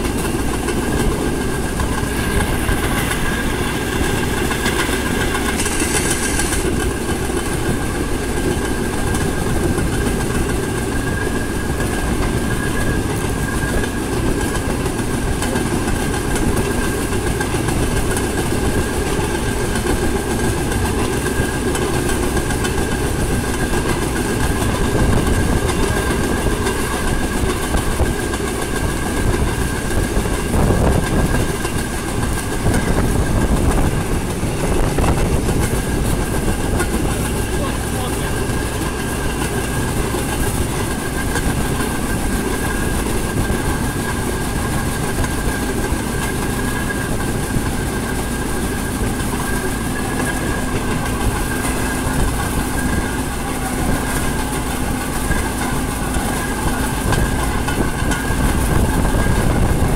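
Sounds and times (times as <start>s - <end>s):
rail vehicle wheels rumbling on rails: 0.0s - 59.9s.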